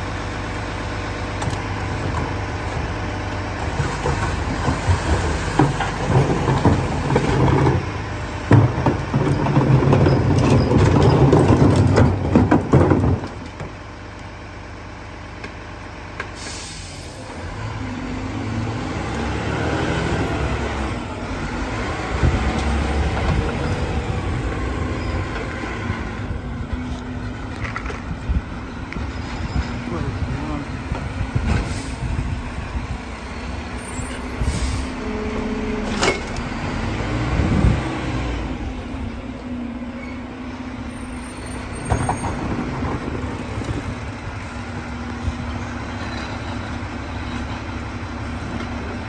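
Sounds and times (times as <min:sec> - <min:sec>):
garbage truck engine revving: 0:16.7 - 0:26.8, 0:28.4 - 0:39.8.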